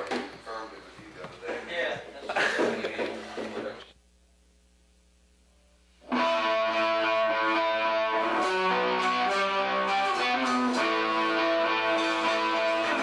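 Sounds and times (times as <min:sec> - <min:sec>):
faint hum: 0:00.0 - 0:06.1
electric guitar playing held notes: 0:06.0 - 0:13.0.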